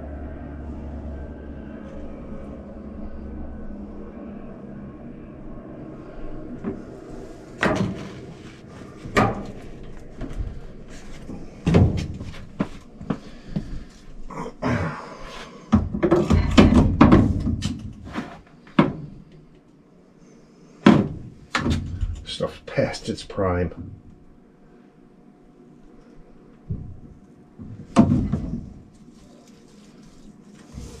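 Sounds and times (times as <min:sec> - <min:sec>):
scraping and rustling: 0:28.6 - 0:31.0.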